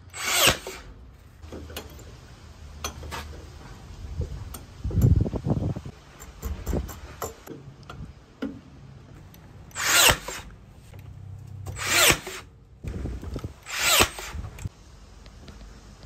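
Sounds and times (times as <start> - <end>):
nail gun firing: 0.1 - 0.9, 9.8 - 10.5, 11.7 - 12.5, 13.6 - 14.4.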